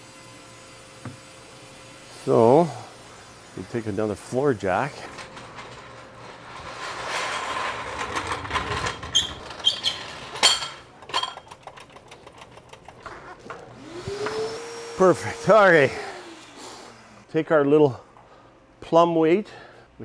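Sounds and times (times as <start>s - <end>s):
floor jack wheels rattling: 4.6s - 14.4s.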